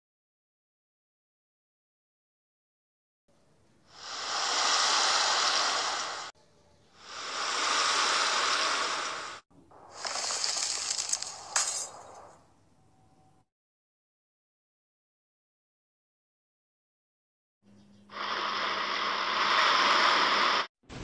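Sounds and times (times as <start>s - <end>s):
swirling rushing water: 4.0s - 6.3s, 7.1s - 9.4s.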